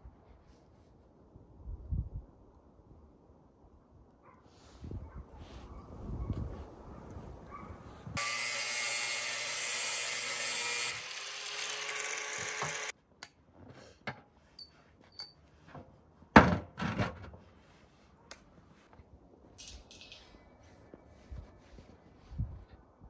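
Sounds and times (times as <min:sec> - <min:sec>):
small motor running: 0:08.2 - 0:12.9.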